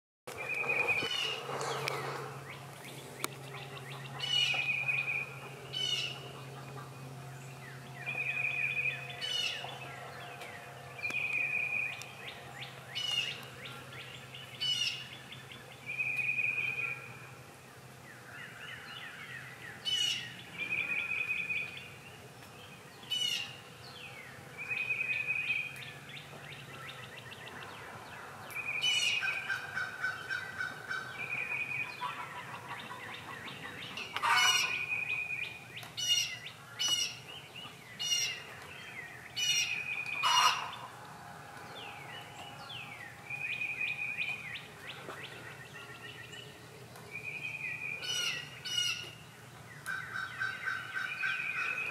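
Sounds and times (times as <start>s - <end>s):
hens and wild birds calling: 0.3s - 51.9s
high bird call: 28.5s - 35.4s, 39.4s - 40.9s.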